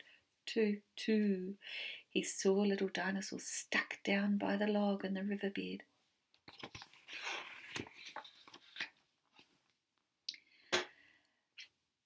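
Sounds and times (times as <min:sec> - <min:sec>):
paper page rustling: 0:06.5 - 0:09.5.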